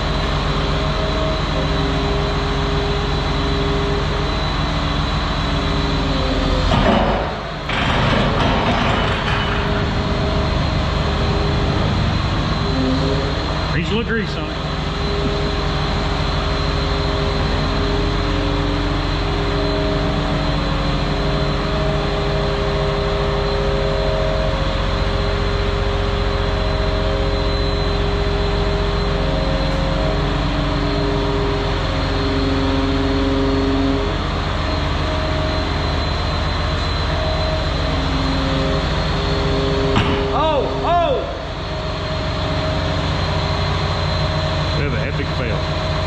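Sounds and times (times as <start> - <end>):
diesel engine under load: 0.0 - 46.0
hydraulic tones changing pitch: 9.7 - 46.0.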